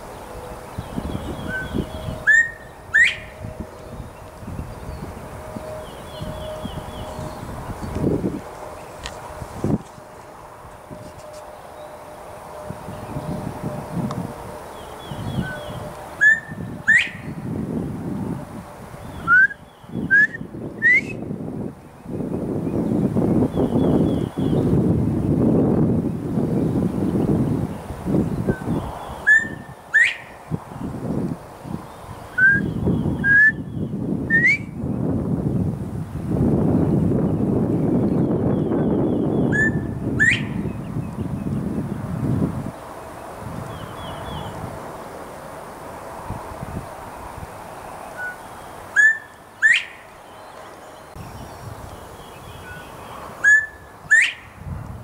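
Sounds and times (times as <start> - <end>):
bird whistled call: 0.8 - 3.4, 15.1 - 17.4, 19.1 - 21.3, 28.5 - 30.4, 32.3 - 34.8, 38.2 - 40.8, 48.2 - 50.0, 52.4 - 54.6.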